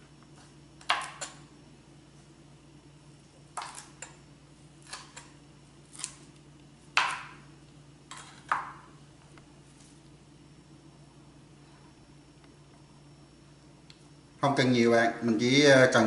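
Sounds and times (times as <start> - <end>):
knife chopping on cutting board: 3.6 - 4.1, 7.0 - 7.4, 8.1 - 8.8.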